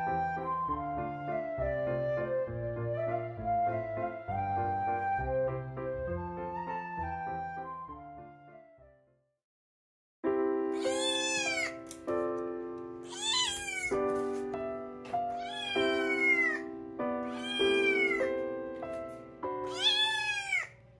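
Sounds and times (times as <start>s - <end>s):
soft background music: 0.0s - 8.8s, 10.3s - 20.9s
kitten meowing: 10.8s - 11.8s, 13.0s - 14.0s, 15.3s - 18.3s, 19.6s - 20.8s.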